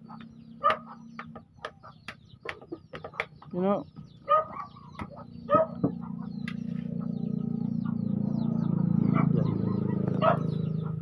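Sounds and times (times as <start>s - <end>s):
birds chirping: 0.0s - 11.0s
chickens calling: 0.0s - 11.0s
vehicle engine passing: 3.8s - 11.0s.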